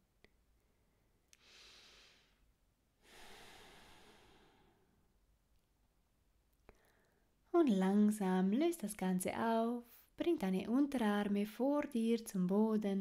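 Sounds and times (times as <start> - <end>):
faint breaths: 1.4 - 5.1.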